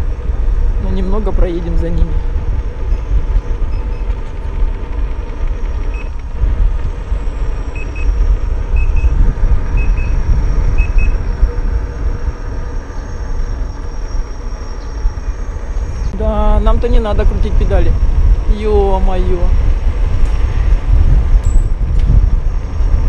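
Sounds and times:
wind buffeting microphone: 0.0 - 23.0
faint double beeps: 10.8 - 11.2.

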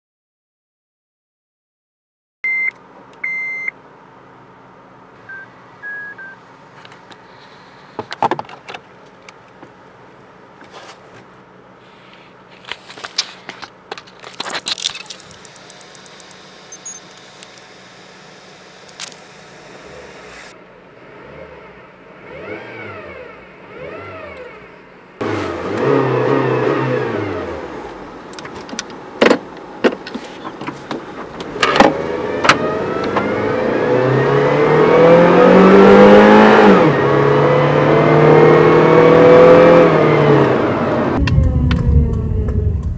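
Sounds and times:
short high beeps: 5.3 - 6.4, 14.8 - 17.1
car keys jangling: 14.1 - 15.8
car engine revving: 17.1 - 29.2, 31.2 - 42.9.

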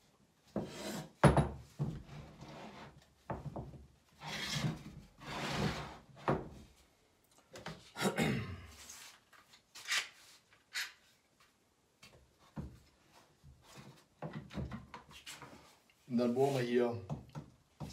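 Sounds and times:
wood sliding and scraping: 4.2 - 6.5.

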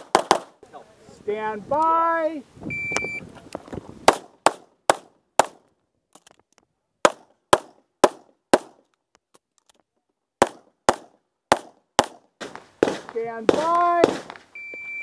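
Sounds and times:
pistol shots: 0.0 - 0.6, 10.4 - 14.4.

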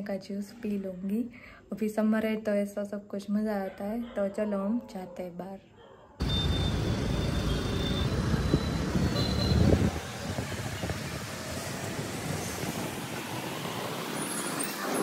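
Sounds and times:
road traffic rumble: 6.2 - 15.0.

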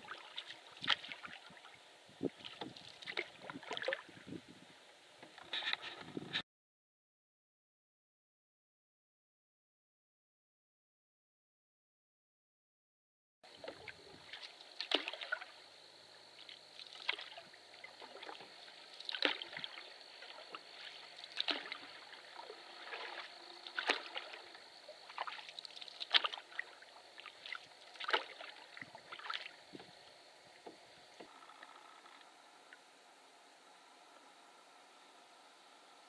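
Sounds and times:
canoe paddle splashing: 0.0 - 4.2, 13.5 - 32.8.

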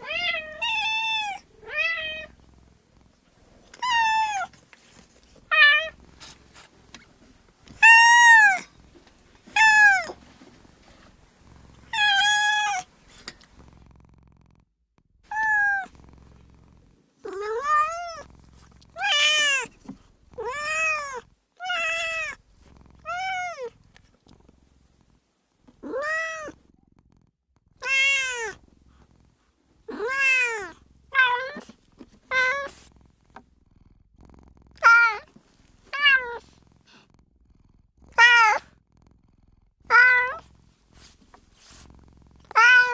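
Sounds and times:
cat meowing: 0.0 - 2.4, 3.7 - 4.5, 5.5 - 6.0, 7.7 - 8.7, 9.5 - 10.2, 11.9 - 12.9, 15.3 - 15.9, 17.2 - 18.3, 19.0 - 19.8, 20.4 - 22.4, 23.0 - 23.8, 25.8 - 26.6, 27.8 - 28.6, 29.9 - 31.7, 32.3 - 32.8, 34.8 - 35.3, 35.9 - 36.5, 38.1 - 38.7, 39.9 - 40.5, 42.5 - 42.9.

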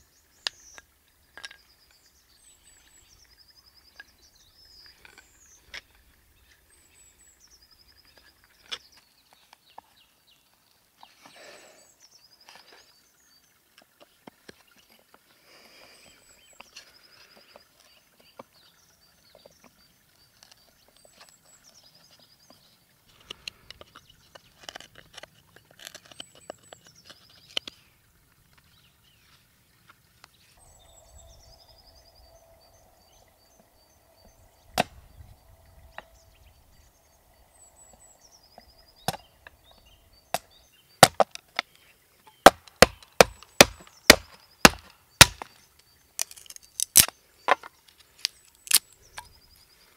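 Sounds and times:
songbirds trilling: 0.0 - 13.6, 25.4 - 49.9
sharp wooden strikes chopping wood: 39.1 - 39.3, 40.3 - 41.4, 42.4 - 45.5.

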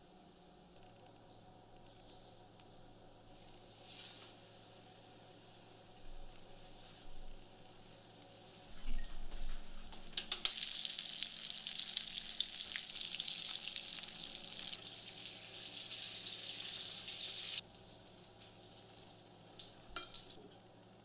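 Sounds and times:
fritters sizzling in hot oil: 10.4 - 17.6.

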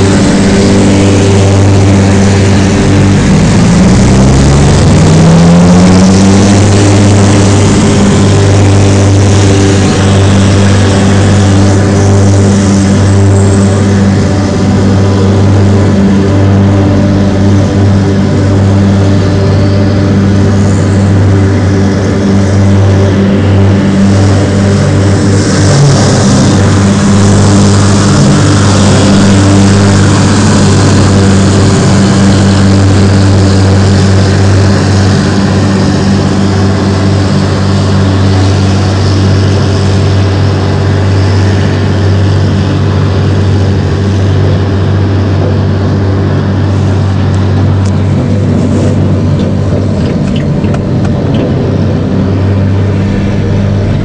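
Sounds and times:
low engine drone: 0.0 - 54.0.

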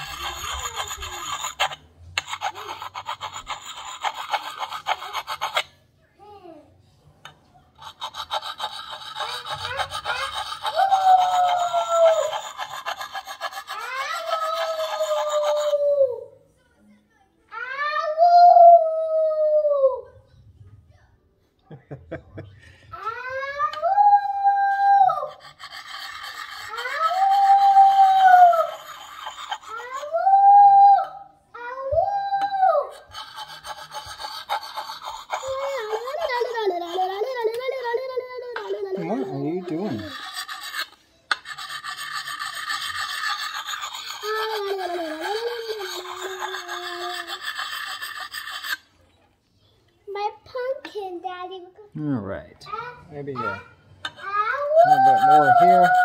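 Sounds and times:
sharpening stone rasping on axe: 0.0 - 5.7, 7.8 - 15.6, 25.4 - 27.6, 33.0 - 37.0, 39.0 - 48.9
child howling: 8.7 - 16.4, 17.6 - 20.2, 23.0 - 40.4, 42.2 - 48.6, 54.2 - 56.0.

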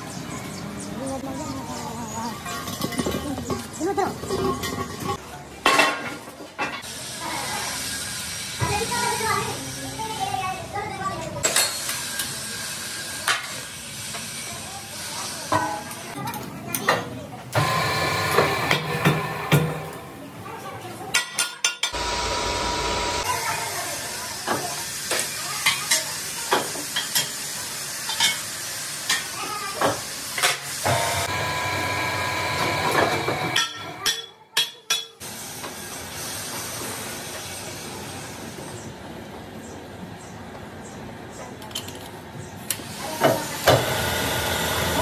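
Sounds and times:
lathe cutting tool hiss: 22.0 - 24.5.

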